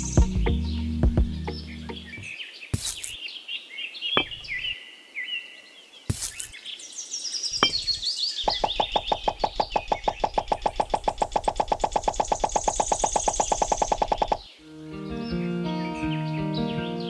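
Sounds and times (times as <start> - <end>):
birds chirping: 0.0 - 17.0
clay bricks set down in sand: 2.7 - 3.2, 6.1 - 6.6
fast even rattle: 8.5 - 14.4.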